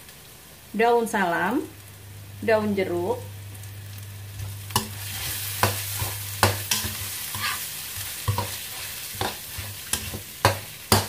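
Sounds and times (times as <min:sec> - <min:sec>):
low steady hum: 0:00.5 - 0:11.0
paste sizzling in oil: 0:01.5 - 0:11.0
metal spatula clacking on wok: 0:09.2 - 0:11.0.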